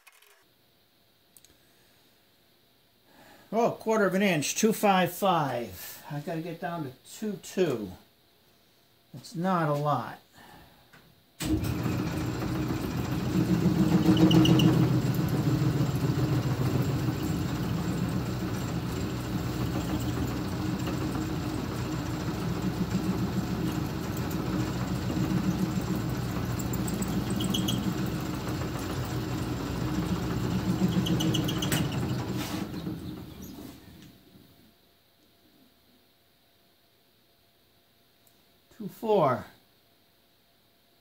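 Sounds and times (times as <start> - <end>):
metal lathe motor humming: 11.5 - 33.6.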